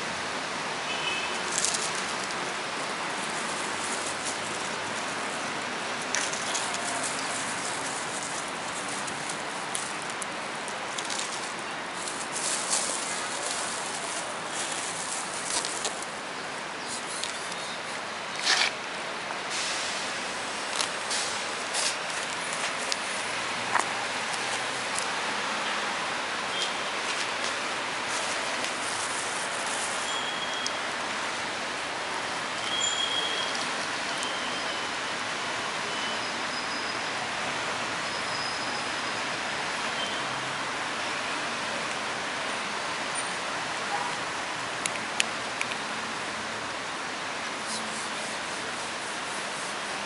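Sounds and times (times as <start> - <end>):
steady outdoor hiss: 0.0 - 50.0
plastic bag rustling: 3.1 - 5.5, 6.1 - 10.2, 10.9 - 16.2, 27.0 - 30.5
steady hiss: 18.9 - 34.1, 45.3 - 50.0
faint high whistle-like tones: 30.1 - 30.8, 32.6 - 34.9.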